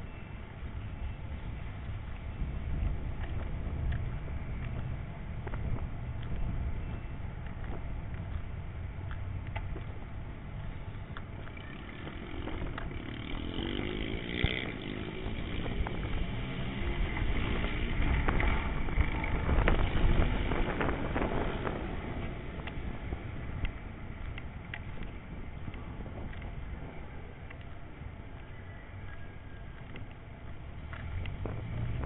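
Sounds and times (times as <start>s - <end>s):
vehicle engine running: 0.7s - 32.0s
wind on microphone: 1.5s - 32.0s.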